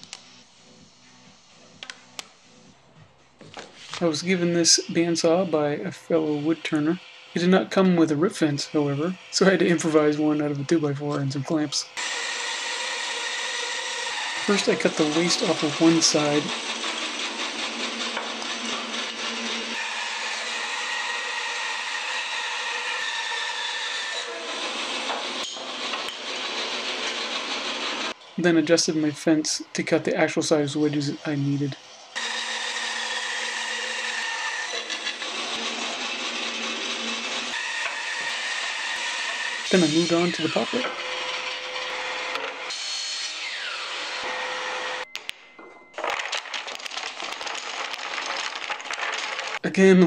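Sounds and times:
bandsaw cutting wood: 0:03.8 - 0:29.1, 0:30.7 - 0:45.1
miter saw running: 0:12.0 - 0:28.6, 0:30.8 - 0:45.0.

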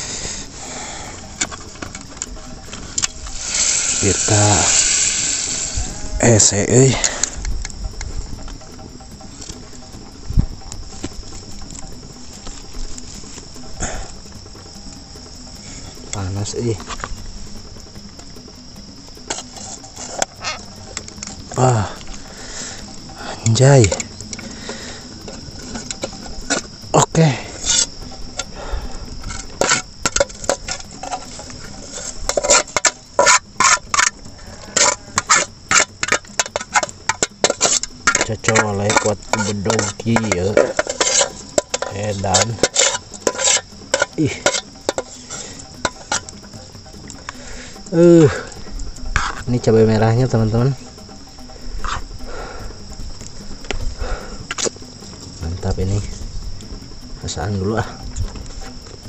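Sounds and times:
insects chirring: 0:00.0 - 0:59.0
metal utensil scraping metal pot: 0:29.2 - 0:46.4, 0:49.1 - 0:49.5.

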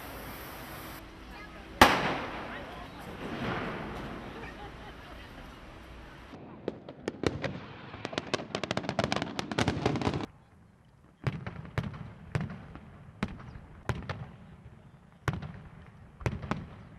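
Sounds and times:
firecrackers banging: 0:00.0 - 0:10.3.

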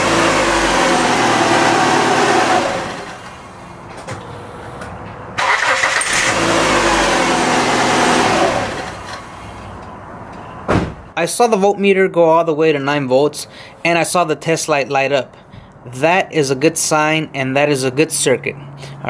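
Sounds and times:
car starter cranking engine: 0:05.4 - 0:09.4.

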